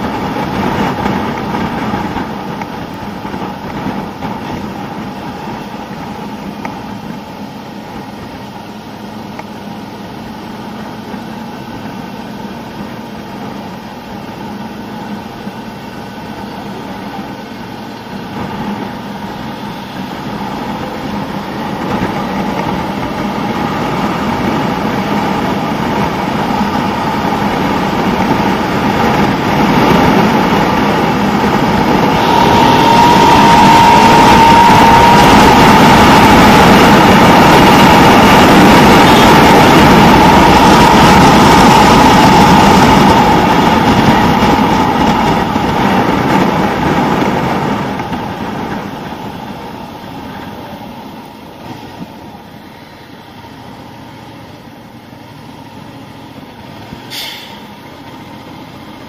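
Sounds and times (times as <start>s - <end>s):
wind rushing over microphone: 0.0s - 8.4s, 18.1s - 54.1s
motorcycle engine running: 0.0s - 59.0s.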